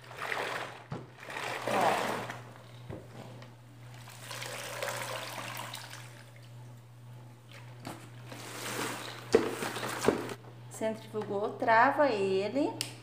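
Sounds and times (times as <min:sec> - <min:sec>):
mop swishing in water: 0:00.0 - 0:02.5, 0:07.5 - 0:10.2
mop spinner spinning: 0:00.0 - 0:02.8.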